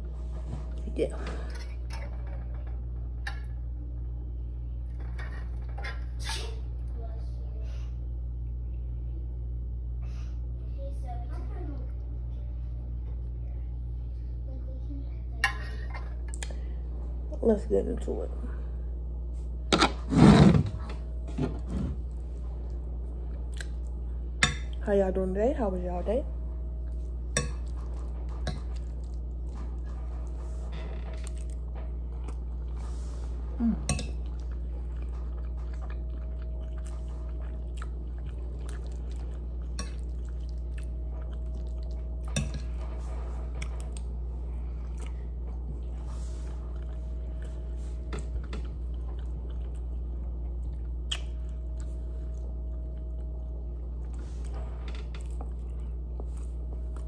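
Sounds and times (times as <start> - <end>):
steady low hum: 0.0 - 57.0
chewing: 22.6 - 24.0, 31.2 - 42.8, 46.6 - 57.0.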